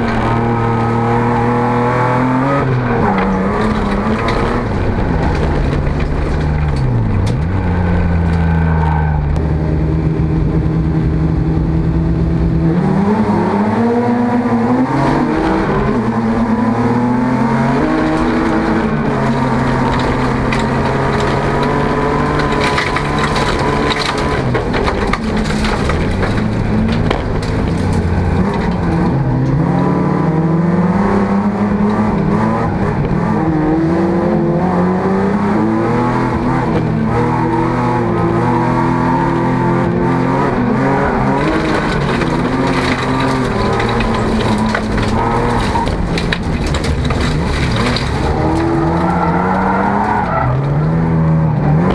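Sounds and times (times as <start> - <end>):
car engine revving: 0.0 - 51.9
gravel clattering against car: 2.4 - 9.4, 17.4 - 29.8, 36.1 - 51.9.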